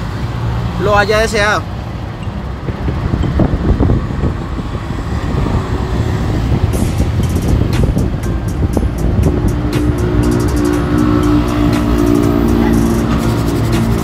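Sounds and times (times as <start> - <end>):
car engine idling: 0.0 - 14.0
sharp ticks: 6.7 - 14.0.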